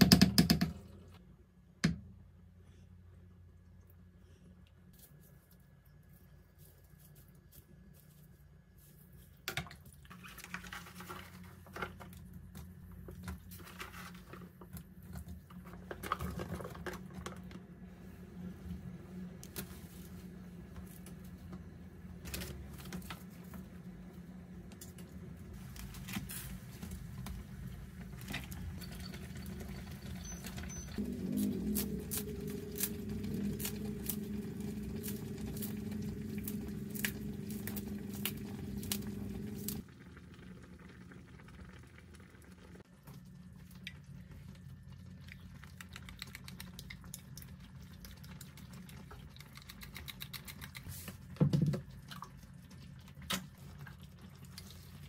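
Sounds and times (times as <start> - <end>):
low hum: 17.2 - 42.6.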